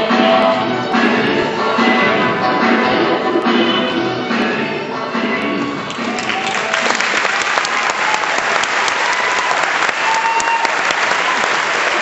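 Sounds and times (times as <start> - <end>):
music: 0.0 - 8.0
audience applauding: 5.7 - 12.0.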